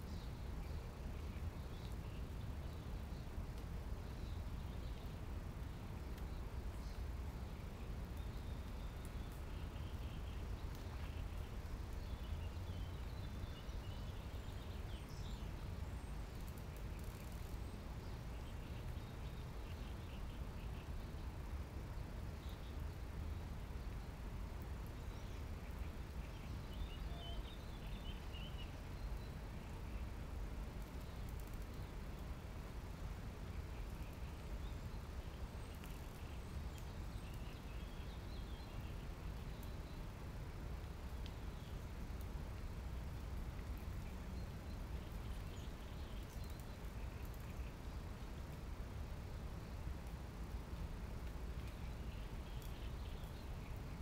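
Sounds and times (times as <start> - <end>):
faint bird chirps: 24.9 - 30.1.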